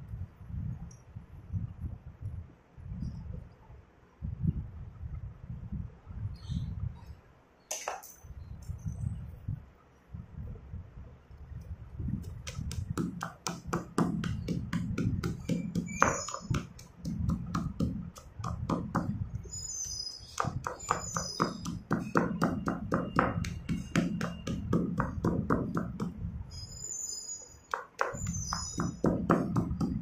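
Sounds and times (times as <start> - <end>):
pestle pounding chalk in mortar: 12.2 - 26.2, 27.7 - 30.0.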